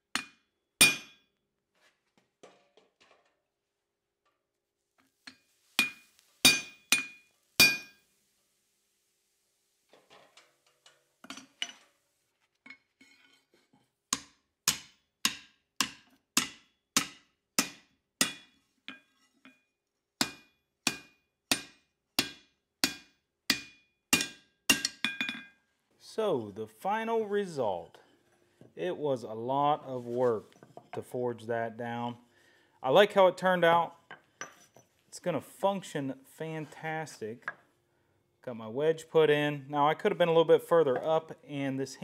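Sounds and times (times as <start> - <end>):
hammer striking steel on anvil: 0.1 - 1.2, 5.8 - 8.0, 14.1 - 19.0, 20.2 - 25.5.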